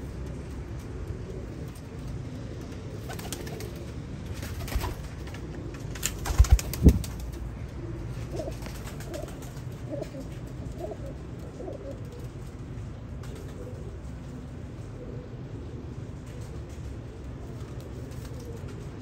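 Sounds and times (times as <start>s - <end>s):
pigeons cooing: 0.1s - 19.0s.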